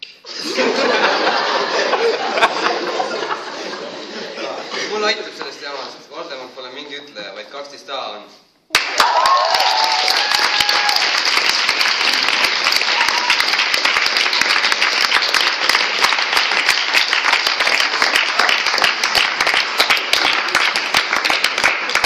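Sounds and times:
crowd applauding: 8.7s - 22.0s.

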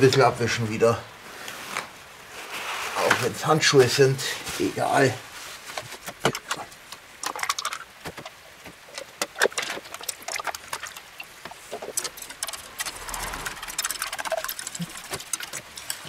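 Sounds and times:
plastic cups clicking: 6.0s - 12.6s.

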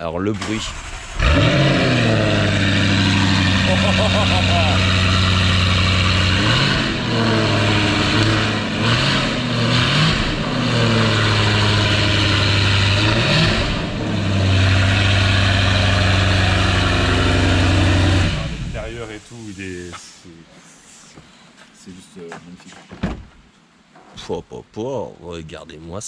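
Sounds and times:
car engine revving and idling: 0.3s - 19.3s.

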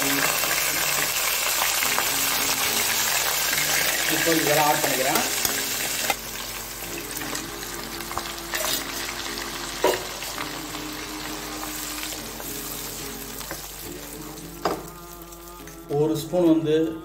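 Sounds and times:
paste sizzling in oil: 0.0s - 15.9s.

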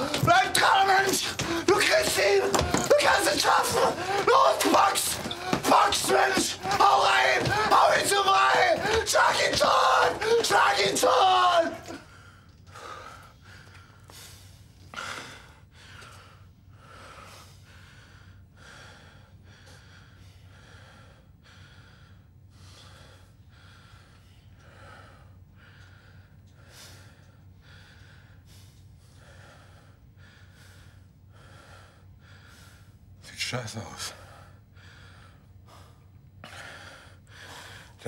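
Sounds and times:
man breathing hard: 0.9s - 2.9s, 3.7s - 4.4s, 12.0s - 33.2s, 34.1s - 38.0s
man gasping: 3.9s - 4.3s.

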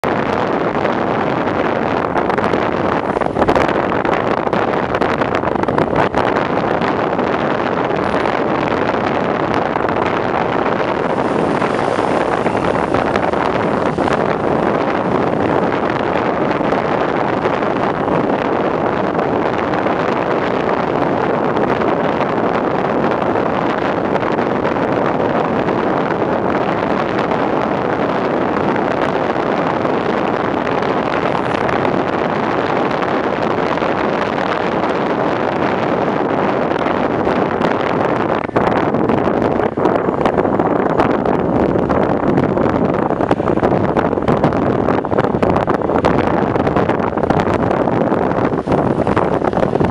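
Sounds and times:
vehicle engine and road noise: 0.0s - 49.9s
wind rushing over microphone: 0.0s - 49.9s.

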